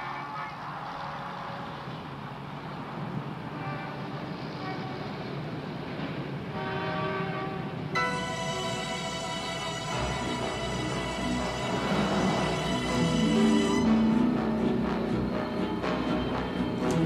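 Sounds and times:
hum of passing cars: 0:00.0 - 0:06.6, 0:07.5 - 0:17.0
orchestral theme music chords: 0:08.0 - 0:17.0.

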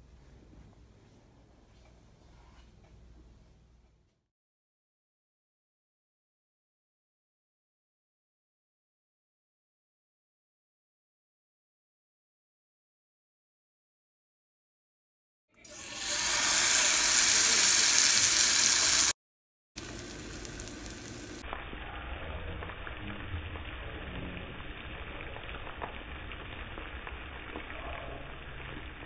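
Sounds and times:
oil sizzling in a frying pan: 0:15.6 - 0:19.2, 0:19.8 - 0:29.0.

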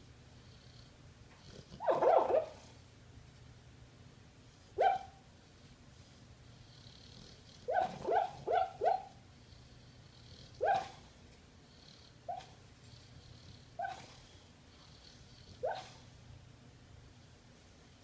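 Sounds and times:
sleeping dog yipping: 0:01.8 - 0:02.7, 0:04.8 - 0:05.2, 0:07.6 - 0:09.2, 0:10.6 - 0:11.0, 0:12.3 - 0:12.6, 0:13.8 - 0:14.2, 0:15.5 - 0:16.0.

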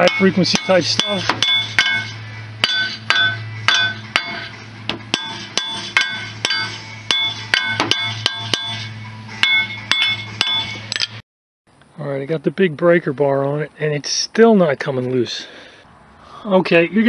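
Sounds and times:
hammer striking metal: 0:00.0 - 0:11.2.

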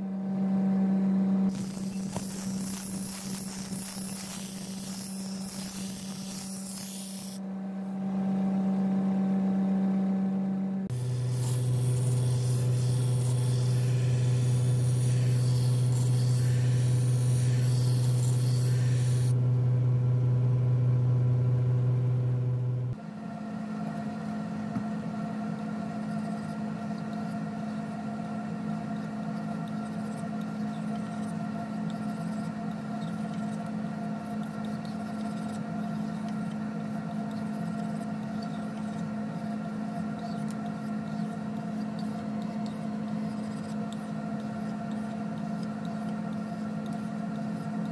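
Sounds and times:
machine hum: 0:00.0 - 0:47.9
belt grinder motor hum: 0:01.5 - 0:07.4, 0:10.9 - 0:19.4
blade grinding on belt: 0:01.5 - 0:07.4, 0:10.9 - 0:19.4, 0:28.8 - 0:47.9
blade scraping on whetstone: 0:01.5 - 0:07.4, 0:10.9 - 0:19.3, 0:29.0 - 0:47.9.

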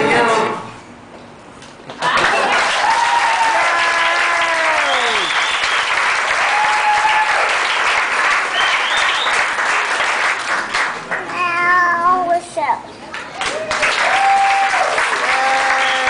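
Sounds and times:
audience applauding: 0:02.0 - 0:11.4, 0:13.1 - 0:16.0
cheers and whoops: 0:02.2 - 0:07.7, 0:13.4 - 0:16.0.

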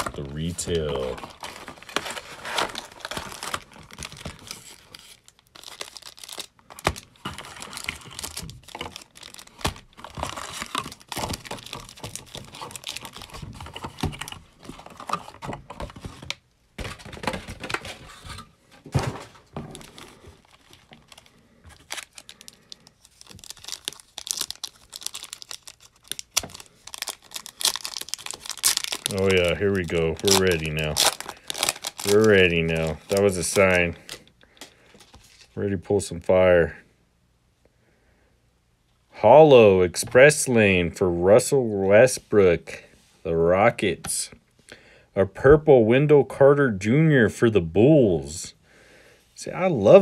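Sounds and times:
foil packs crinkling and tearing: 0:00.0 - 0:16.0, 0:19.1 - 0:35.4.

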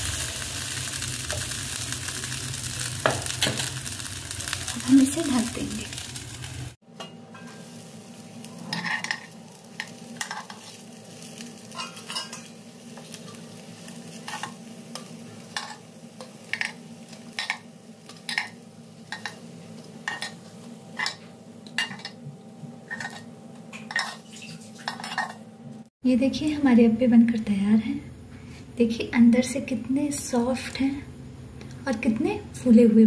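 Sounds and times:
metal spoon clinking on pan: 0:11.8 - 0:12.5.

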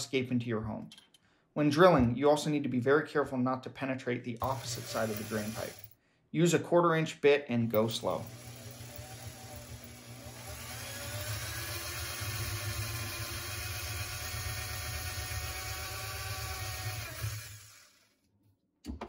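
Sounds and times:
electric drill boring into plastic: 0:04.4 - 0:05.9, 0:07.9 - 0:18.2.

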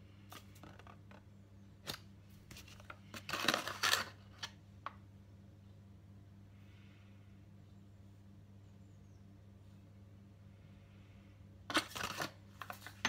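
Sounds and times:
sugar scraping and rustling: 0:01.9 - 0:04.6, 0:11.7 - 0:13.0.

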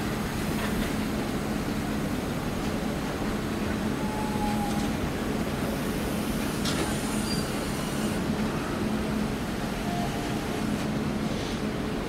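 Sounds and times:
freight wagons rumbling on rails: 0:00.0 - 0:12.0
high wheel squeak: 0:07.1 - 0:07.7.

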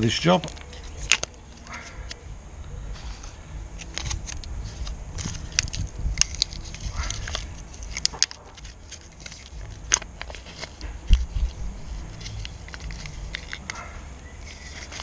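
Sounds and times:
foil wrapper crinkling: 0:00.2 - 0:01.9, 0:03.2 - 0:15.0
low rumble: 0:10.8 - 0:14.5.

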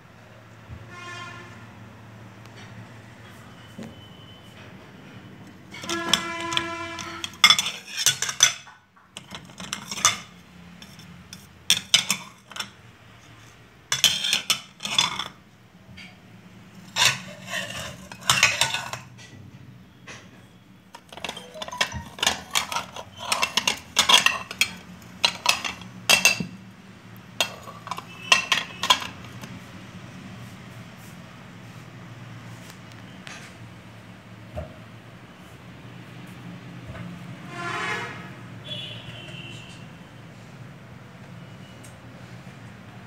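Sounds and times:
plates clinking together: 0:05.7 - 0:12.8, 0:13.9 - 0:15.4, 0:16.8 - 0:19.2, 0:20.9 - 0:26.6, 0:27.4 - 0:29.5.

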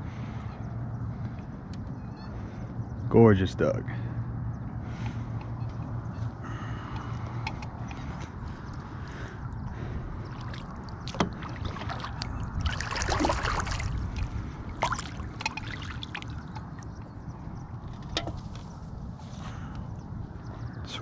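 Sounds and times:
steady low rumble: 0:00.0 - 0:21.0
water splashing and dripping: 0:09.7 - 0:17.0.

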